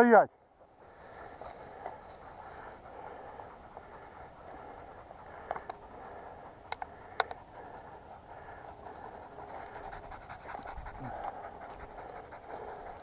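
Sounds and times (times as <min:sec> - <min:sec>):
footsteps through dry grass: 0:00.3 - 0:04.6, 0:08.3 - 0:13.0
panting breath: 0:00.4 - 0:13.0.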